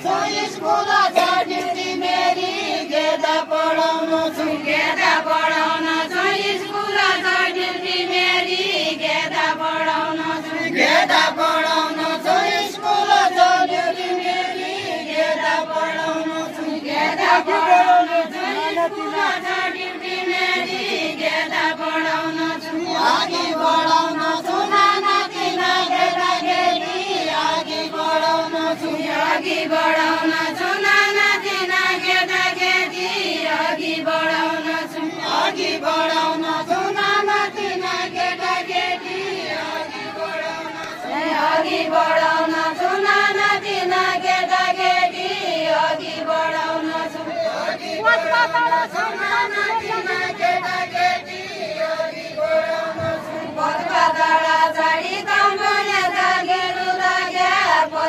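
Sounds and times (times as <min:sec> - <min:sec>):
women singing in unison: 0:00.0 - 0:58.0.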